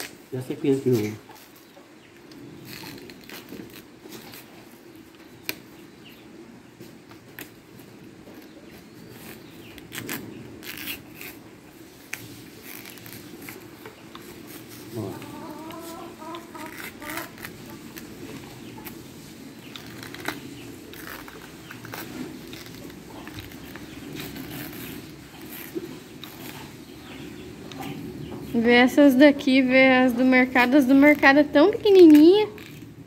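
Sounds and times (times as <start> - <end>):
chicken clucking: 14.9 - 19.0.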